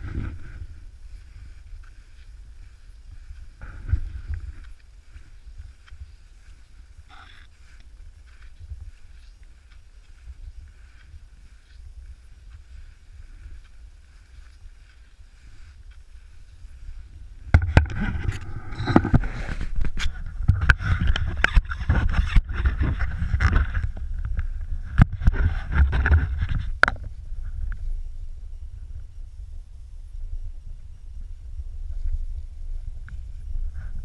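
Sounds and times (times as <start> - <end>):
wind rumble: 0.0 - 34.0
ski poles planting: 17.4 - 27.1.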